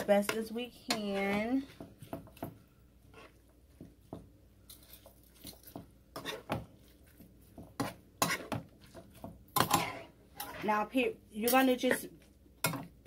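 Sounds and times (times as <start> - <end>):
metal spoon scraping skillet: 3.1 - 3.4, 4.7 - 6.6, 7.6 - 12.8.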